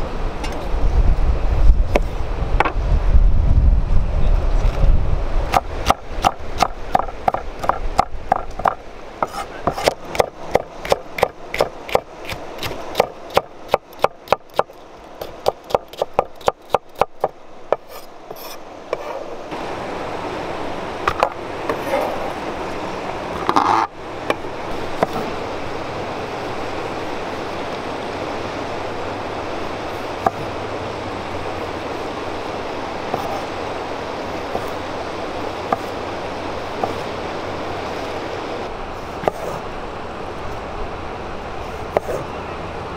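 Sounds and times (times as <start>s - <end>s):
steady hiss: 0.0s - 42.9s
knife chopping on wooden board: 5.5s - 13.4s.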